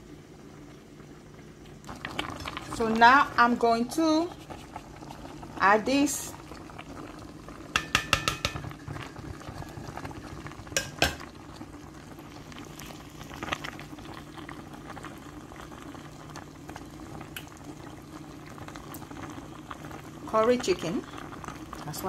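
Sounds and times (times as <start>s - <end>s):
food sizzling in oil: 1.8s - 22.0s.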